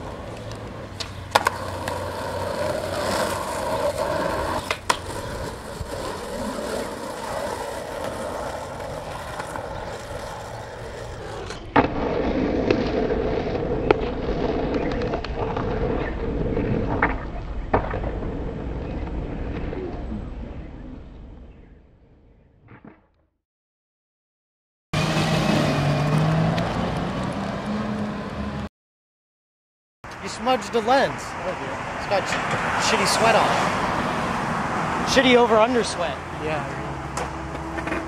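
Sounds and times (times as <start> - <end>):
skateboard clacking on ground: 0.0 - 15.7, 37.1 - 38.0
skateboard wheels rolling on asphalt: 0.0 - 22.5, 25.0 - 28.7, 30.1 - 38.0.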